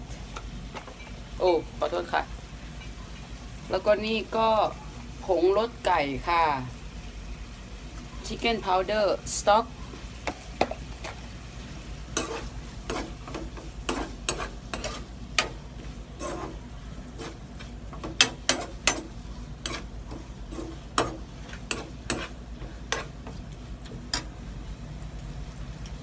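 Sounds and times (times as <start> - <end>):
low sizzle of frying: 0.0 - 26.0
metal spoon scraping a pan: 12.1 - 23.4.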